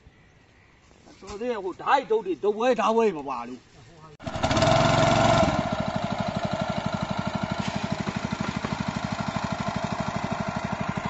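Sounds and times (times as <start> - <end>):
water pump engine idling: 4.2 - 11.0.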